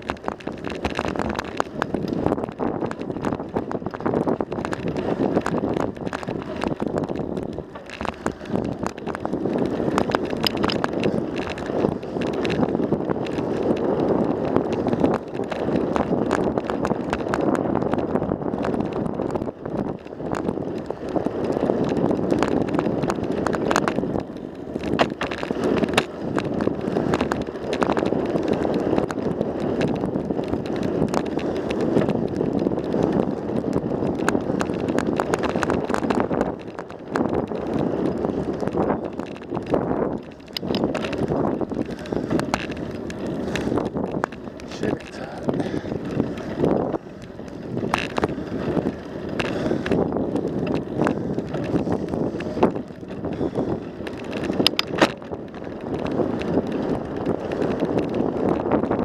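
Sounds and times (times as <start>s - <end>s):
bike clicks and rattles: 0.0s - 59.0s
wind on microphone: 0.0s - 59.0s.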